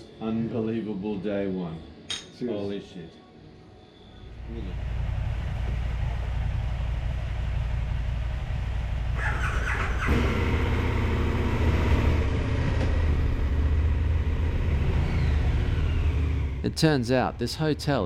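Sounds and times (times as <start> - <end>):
motorcycle engines idling: 4.3 - 18.0.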